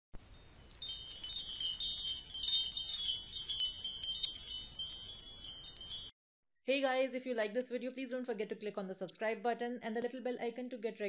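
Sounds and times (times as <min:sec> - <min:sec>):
high tinkling chimes: 0:00.2 - 0:06.1.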